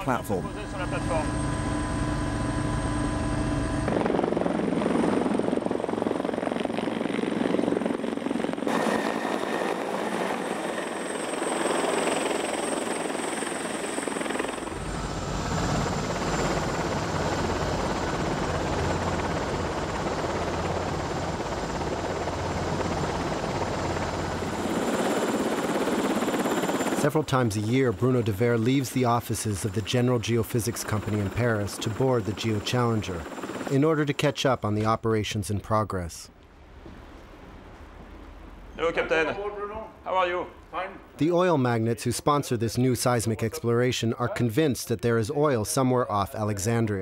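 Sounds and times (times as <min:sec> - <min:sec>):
helicopter rotor and engine: 0:00.0 - 0:34.9.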